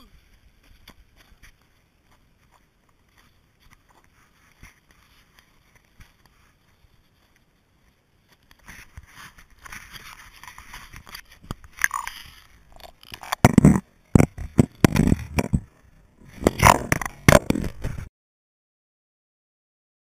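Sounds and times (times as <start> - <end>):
water moving against camera housing: 8.4 - 18.1
underwater camera thumps and knocks: 13.2 - 15.7.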